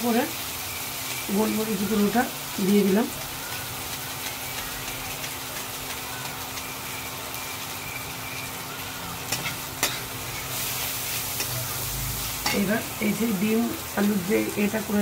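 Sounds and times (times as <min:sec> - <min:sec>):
vegetables sizzling in hot oil: 0:00.0 - 0:15.0
spatula stirring in pan: 0:02.8 - 0:13.0.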